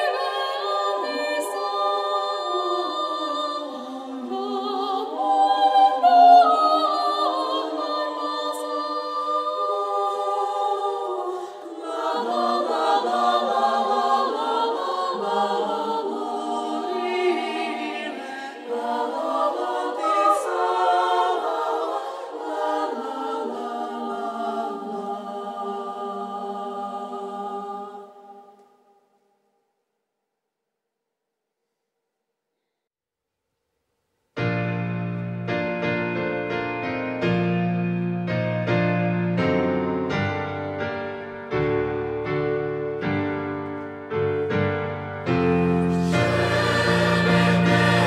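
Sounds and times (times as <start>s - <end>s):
women's choir singing: 0.0s - 28.9s, 45.6s - 48.0s.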